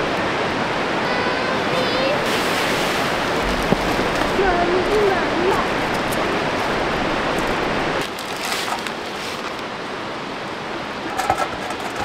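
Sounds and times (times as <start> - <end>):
fast river current rushing: 0.0 - 12.0.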